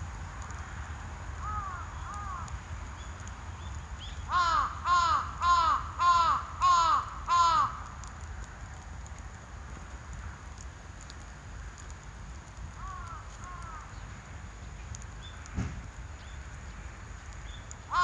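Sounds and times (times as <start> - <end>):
crow cawing: 1.4 - 2.5, 4.3 - 7.9, 12.8 - 13.9.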